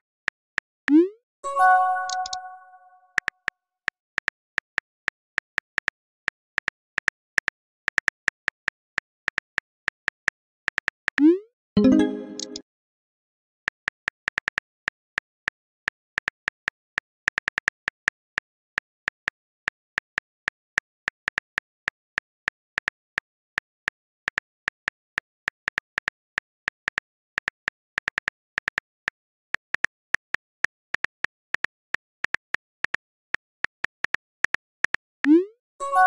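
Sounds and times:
phone keyboard clicks: 2.0 - 2.5.

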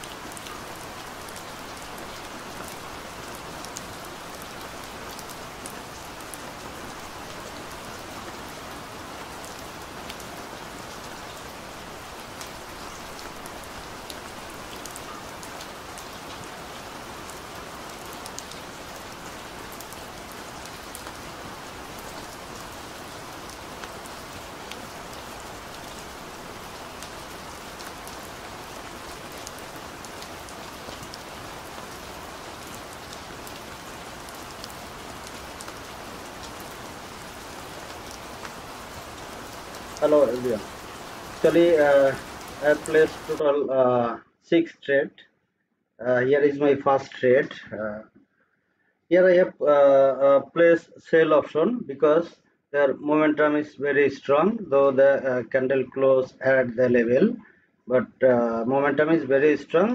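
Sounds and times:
steady hiss: 35.6 - 44.6.

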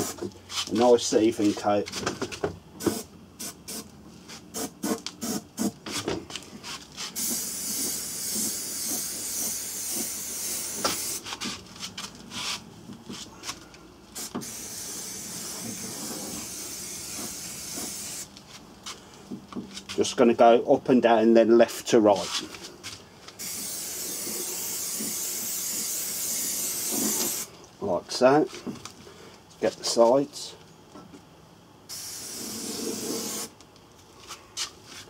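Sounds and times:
aerosol can spraying: 2.8 - 3.8, 4.5 - 5.7, 7.0 - 11.4, 14.2 - 18.3, 23.4 - 27.5, 31.9 - 33.6.

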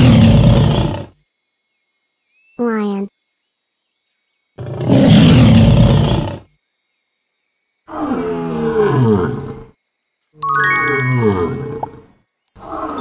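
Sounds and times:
lion roaring: 0.0 - 1.1, 4.6 - 6.4, 7.9 - 9.7
bright chime: 10.4 - 13.0.

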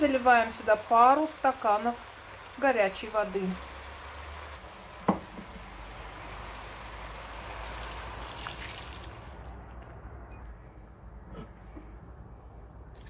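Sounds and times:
water pouring into a pan: 5.6 - 10.0.

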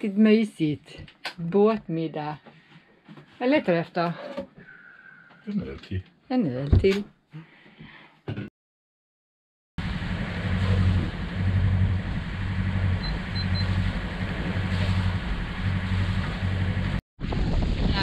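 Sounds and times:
boat engine droning: 9.8 - 17.0.

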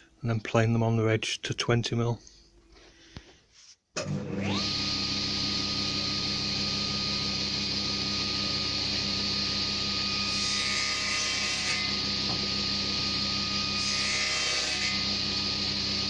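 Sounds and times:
table saw whining: 4.0 - 16.0.

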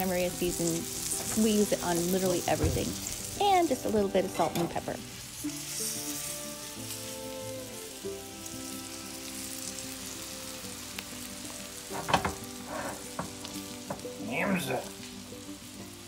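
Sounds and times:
mushrooms sizzling in a skillet: 0.0 - 16.0
soft background music: 0.0 - 16.0.

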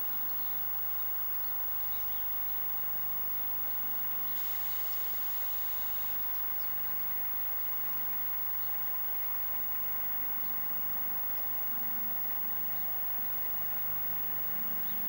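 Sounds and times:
distant locomotive hum: 8.6 - 15.0.

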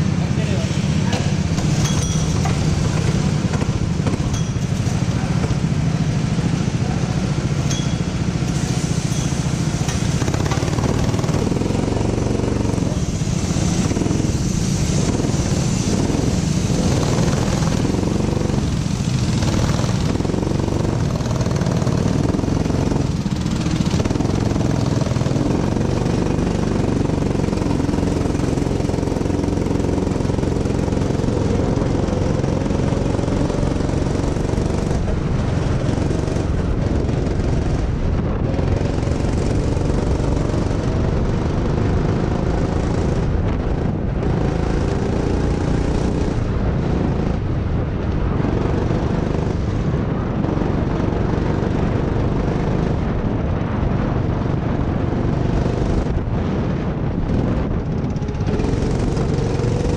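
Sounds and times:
go-kart engine revving: 0.0 - 59.9.

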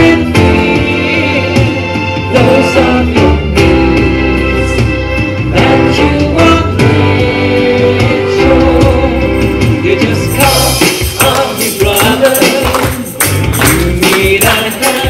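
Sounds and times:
choir singing: 0.0 - 4.8, 5.5 - 12.3
instrumental accompaniment: 0.0 - 15.0.

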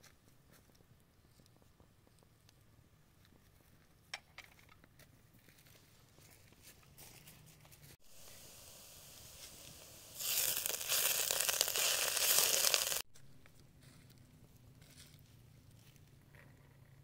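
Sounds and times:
herbs sizzling in a hot pot: 8.0 - 13.1.

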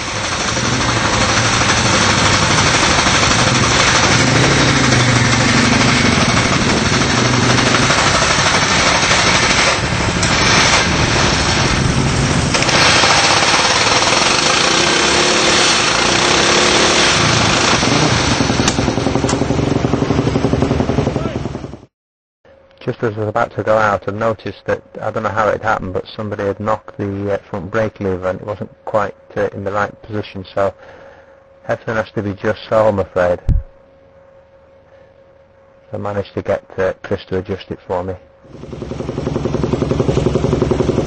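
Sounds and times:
motorcycle engine revving: 0.0 - 21.9, 38.5 - 41.0.

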